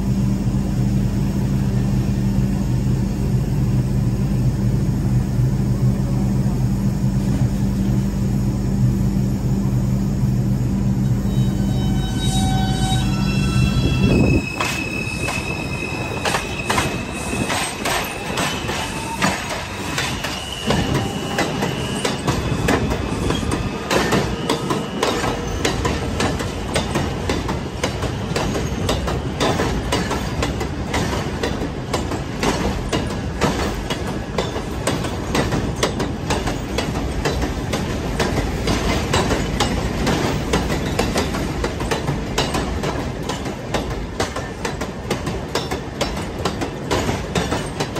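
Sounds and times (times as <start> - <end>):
high wheel squeal: 11.2 - 25.7
train wheels clacking over rail joints: 14.5 - 47.9.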